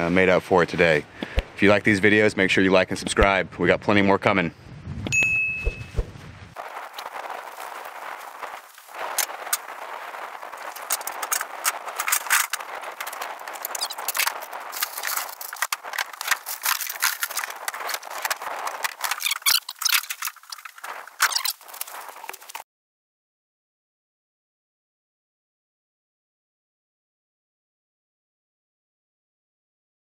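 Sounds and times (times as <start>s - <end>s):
clatter and knocks of gear: 10.5s - 22.6s.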